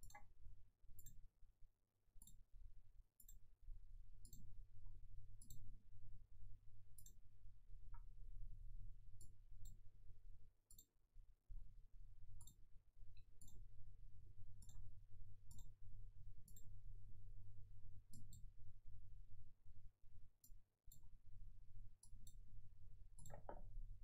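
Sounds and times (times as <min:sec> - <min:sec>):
faint sharp clicks: 0:03.2 - 0:03.4, 0:04.2 - 0:04.5, 0:05.4 - 0:05.6, 0:07.0 - 0:07.2, 0:16.5 - 0:16.7.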